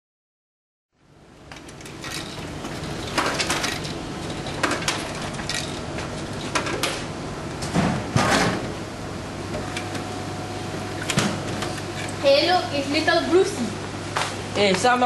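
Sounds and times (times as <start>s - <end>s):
vending machine clicks and clatter: 1.4s - 8.8s, 11.0s - 13.2s.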